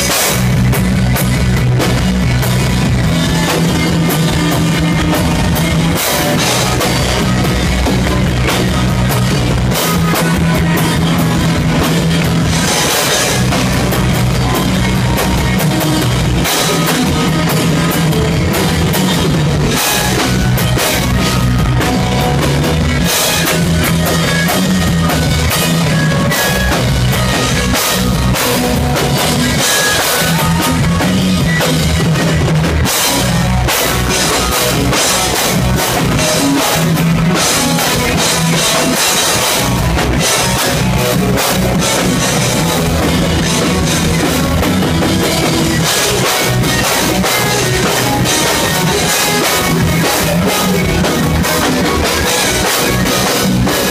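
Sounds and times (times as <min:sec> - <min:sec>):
bass guitar: 0:00.0 - 0:53.9
drum kit: 0:00.0 - 0:53.9
electric guitars: 0:00.0 - 0:53.9.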